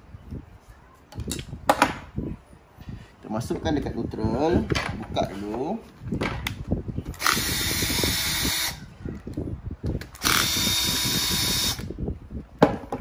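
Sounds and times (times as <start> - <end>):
cordless drill running: 7.2 - 8.8, 10.2 - 11.9.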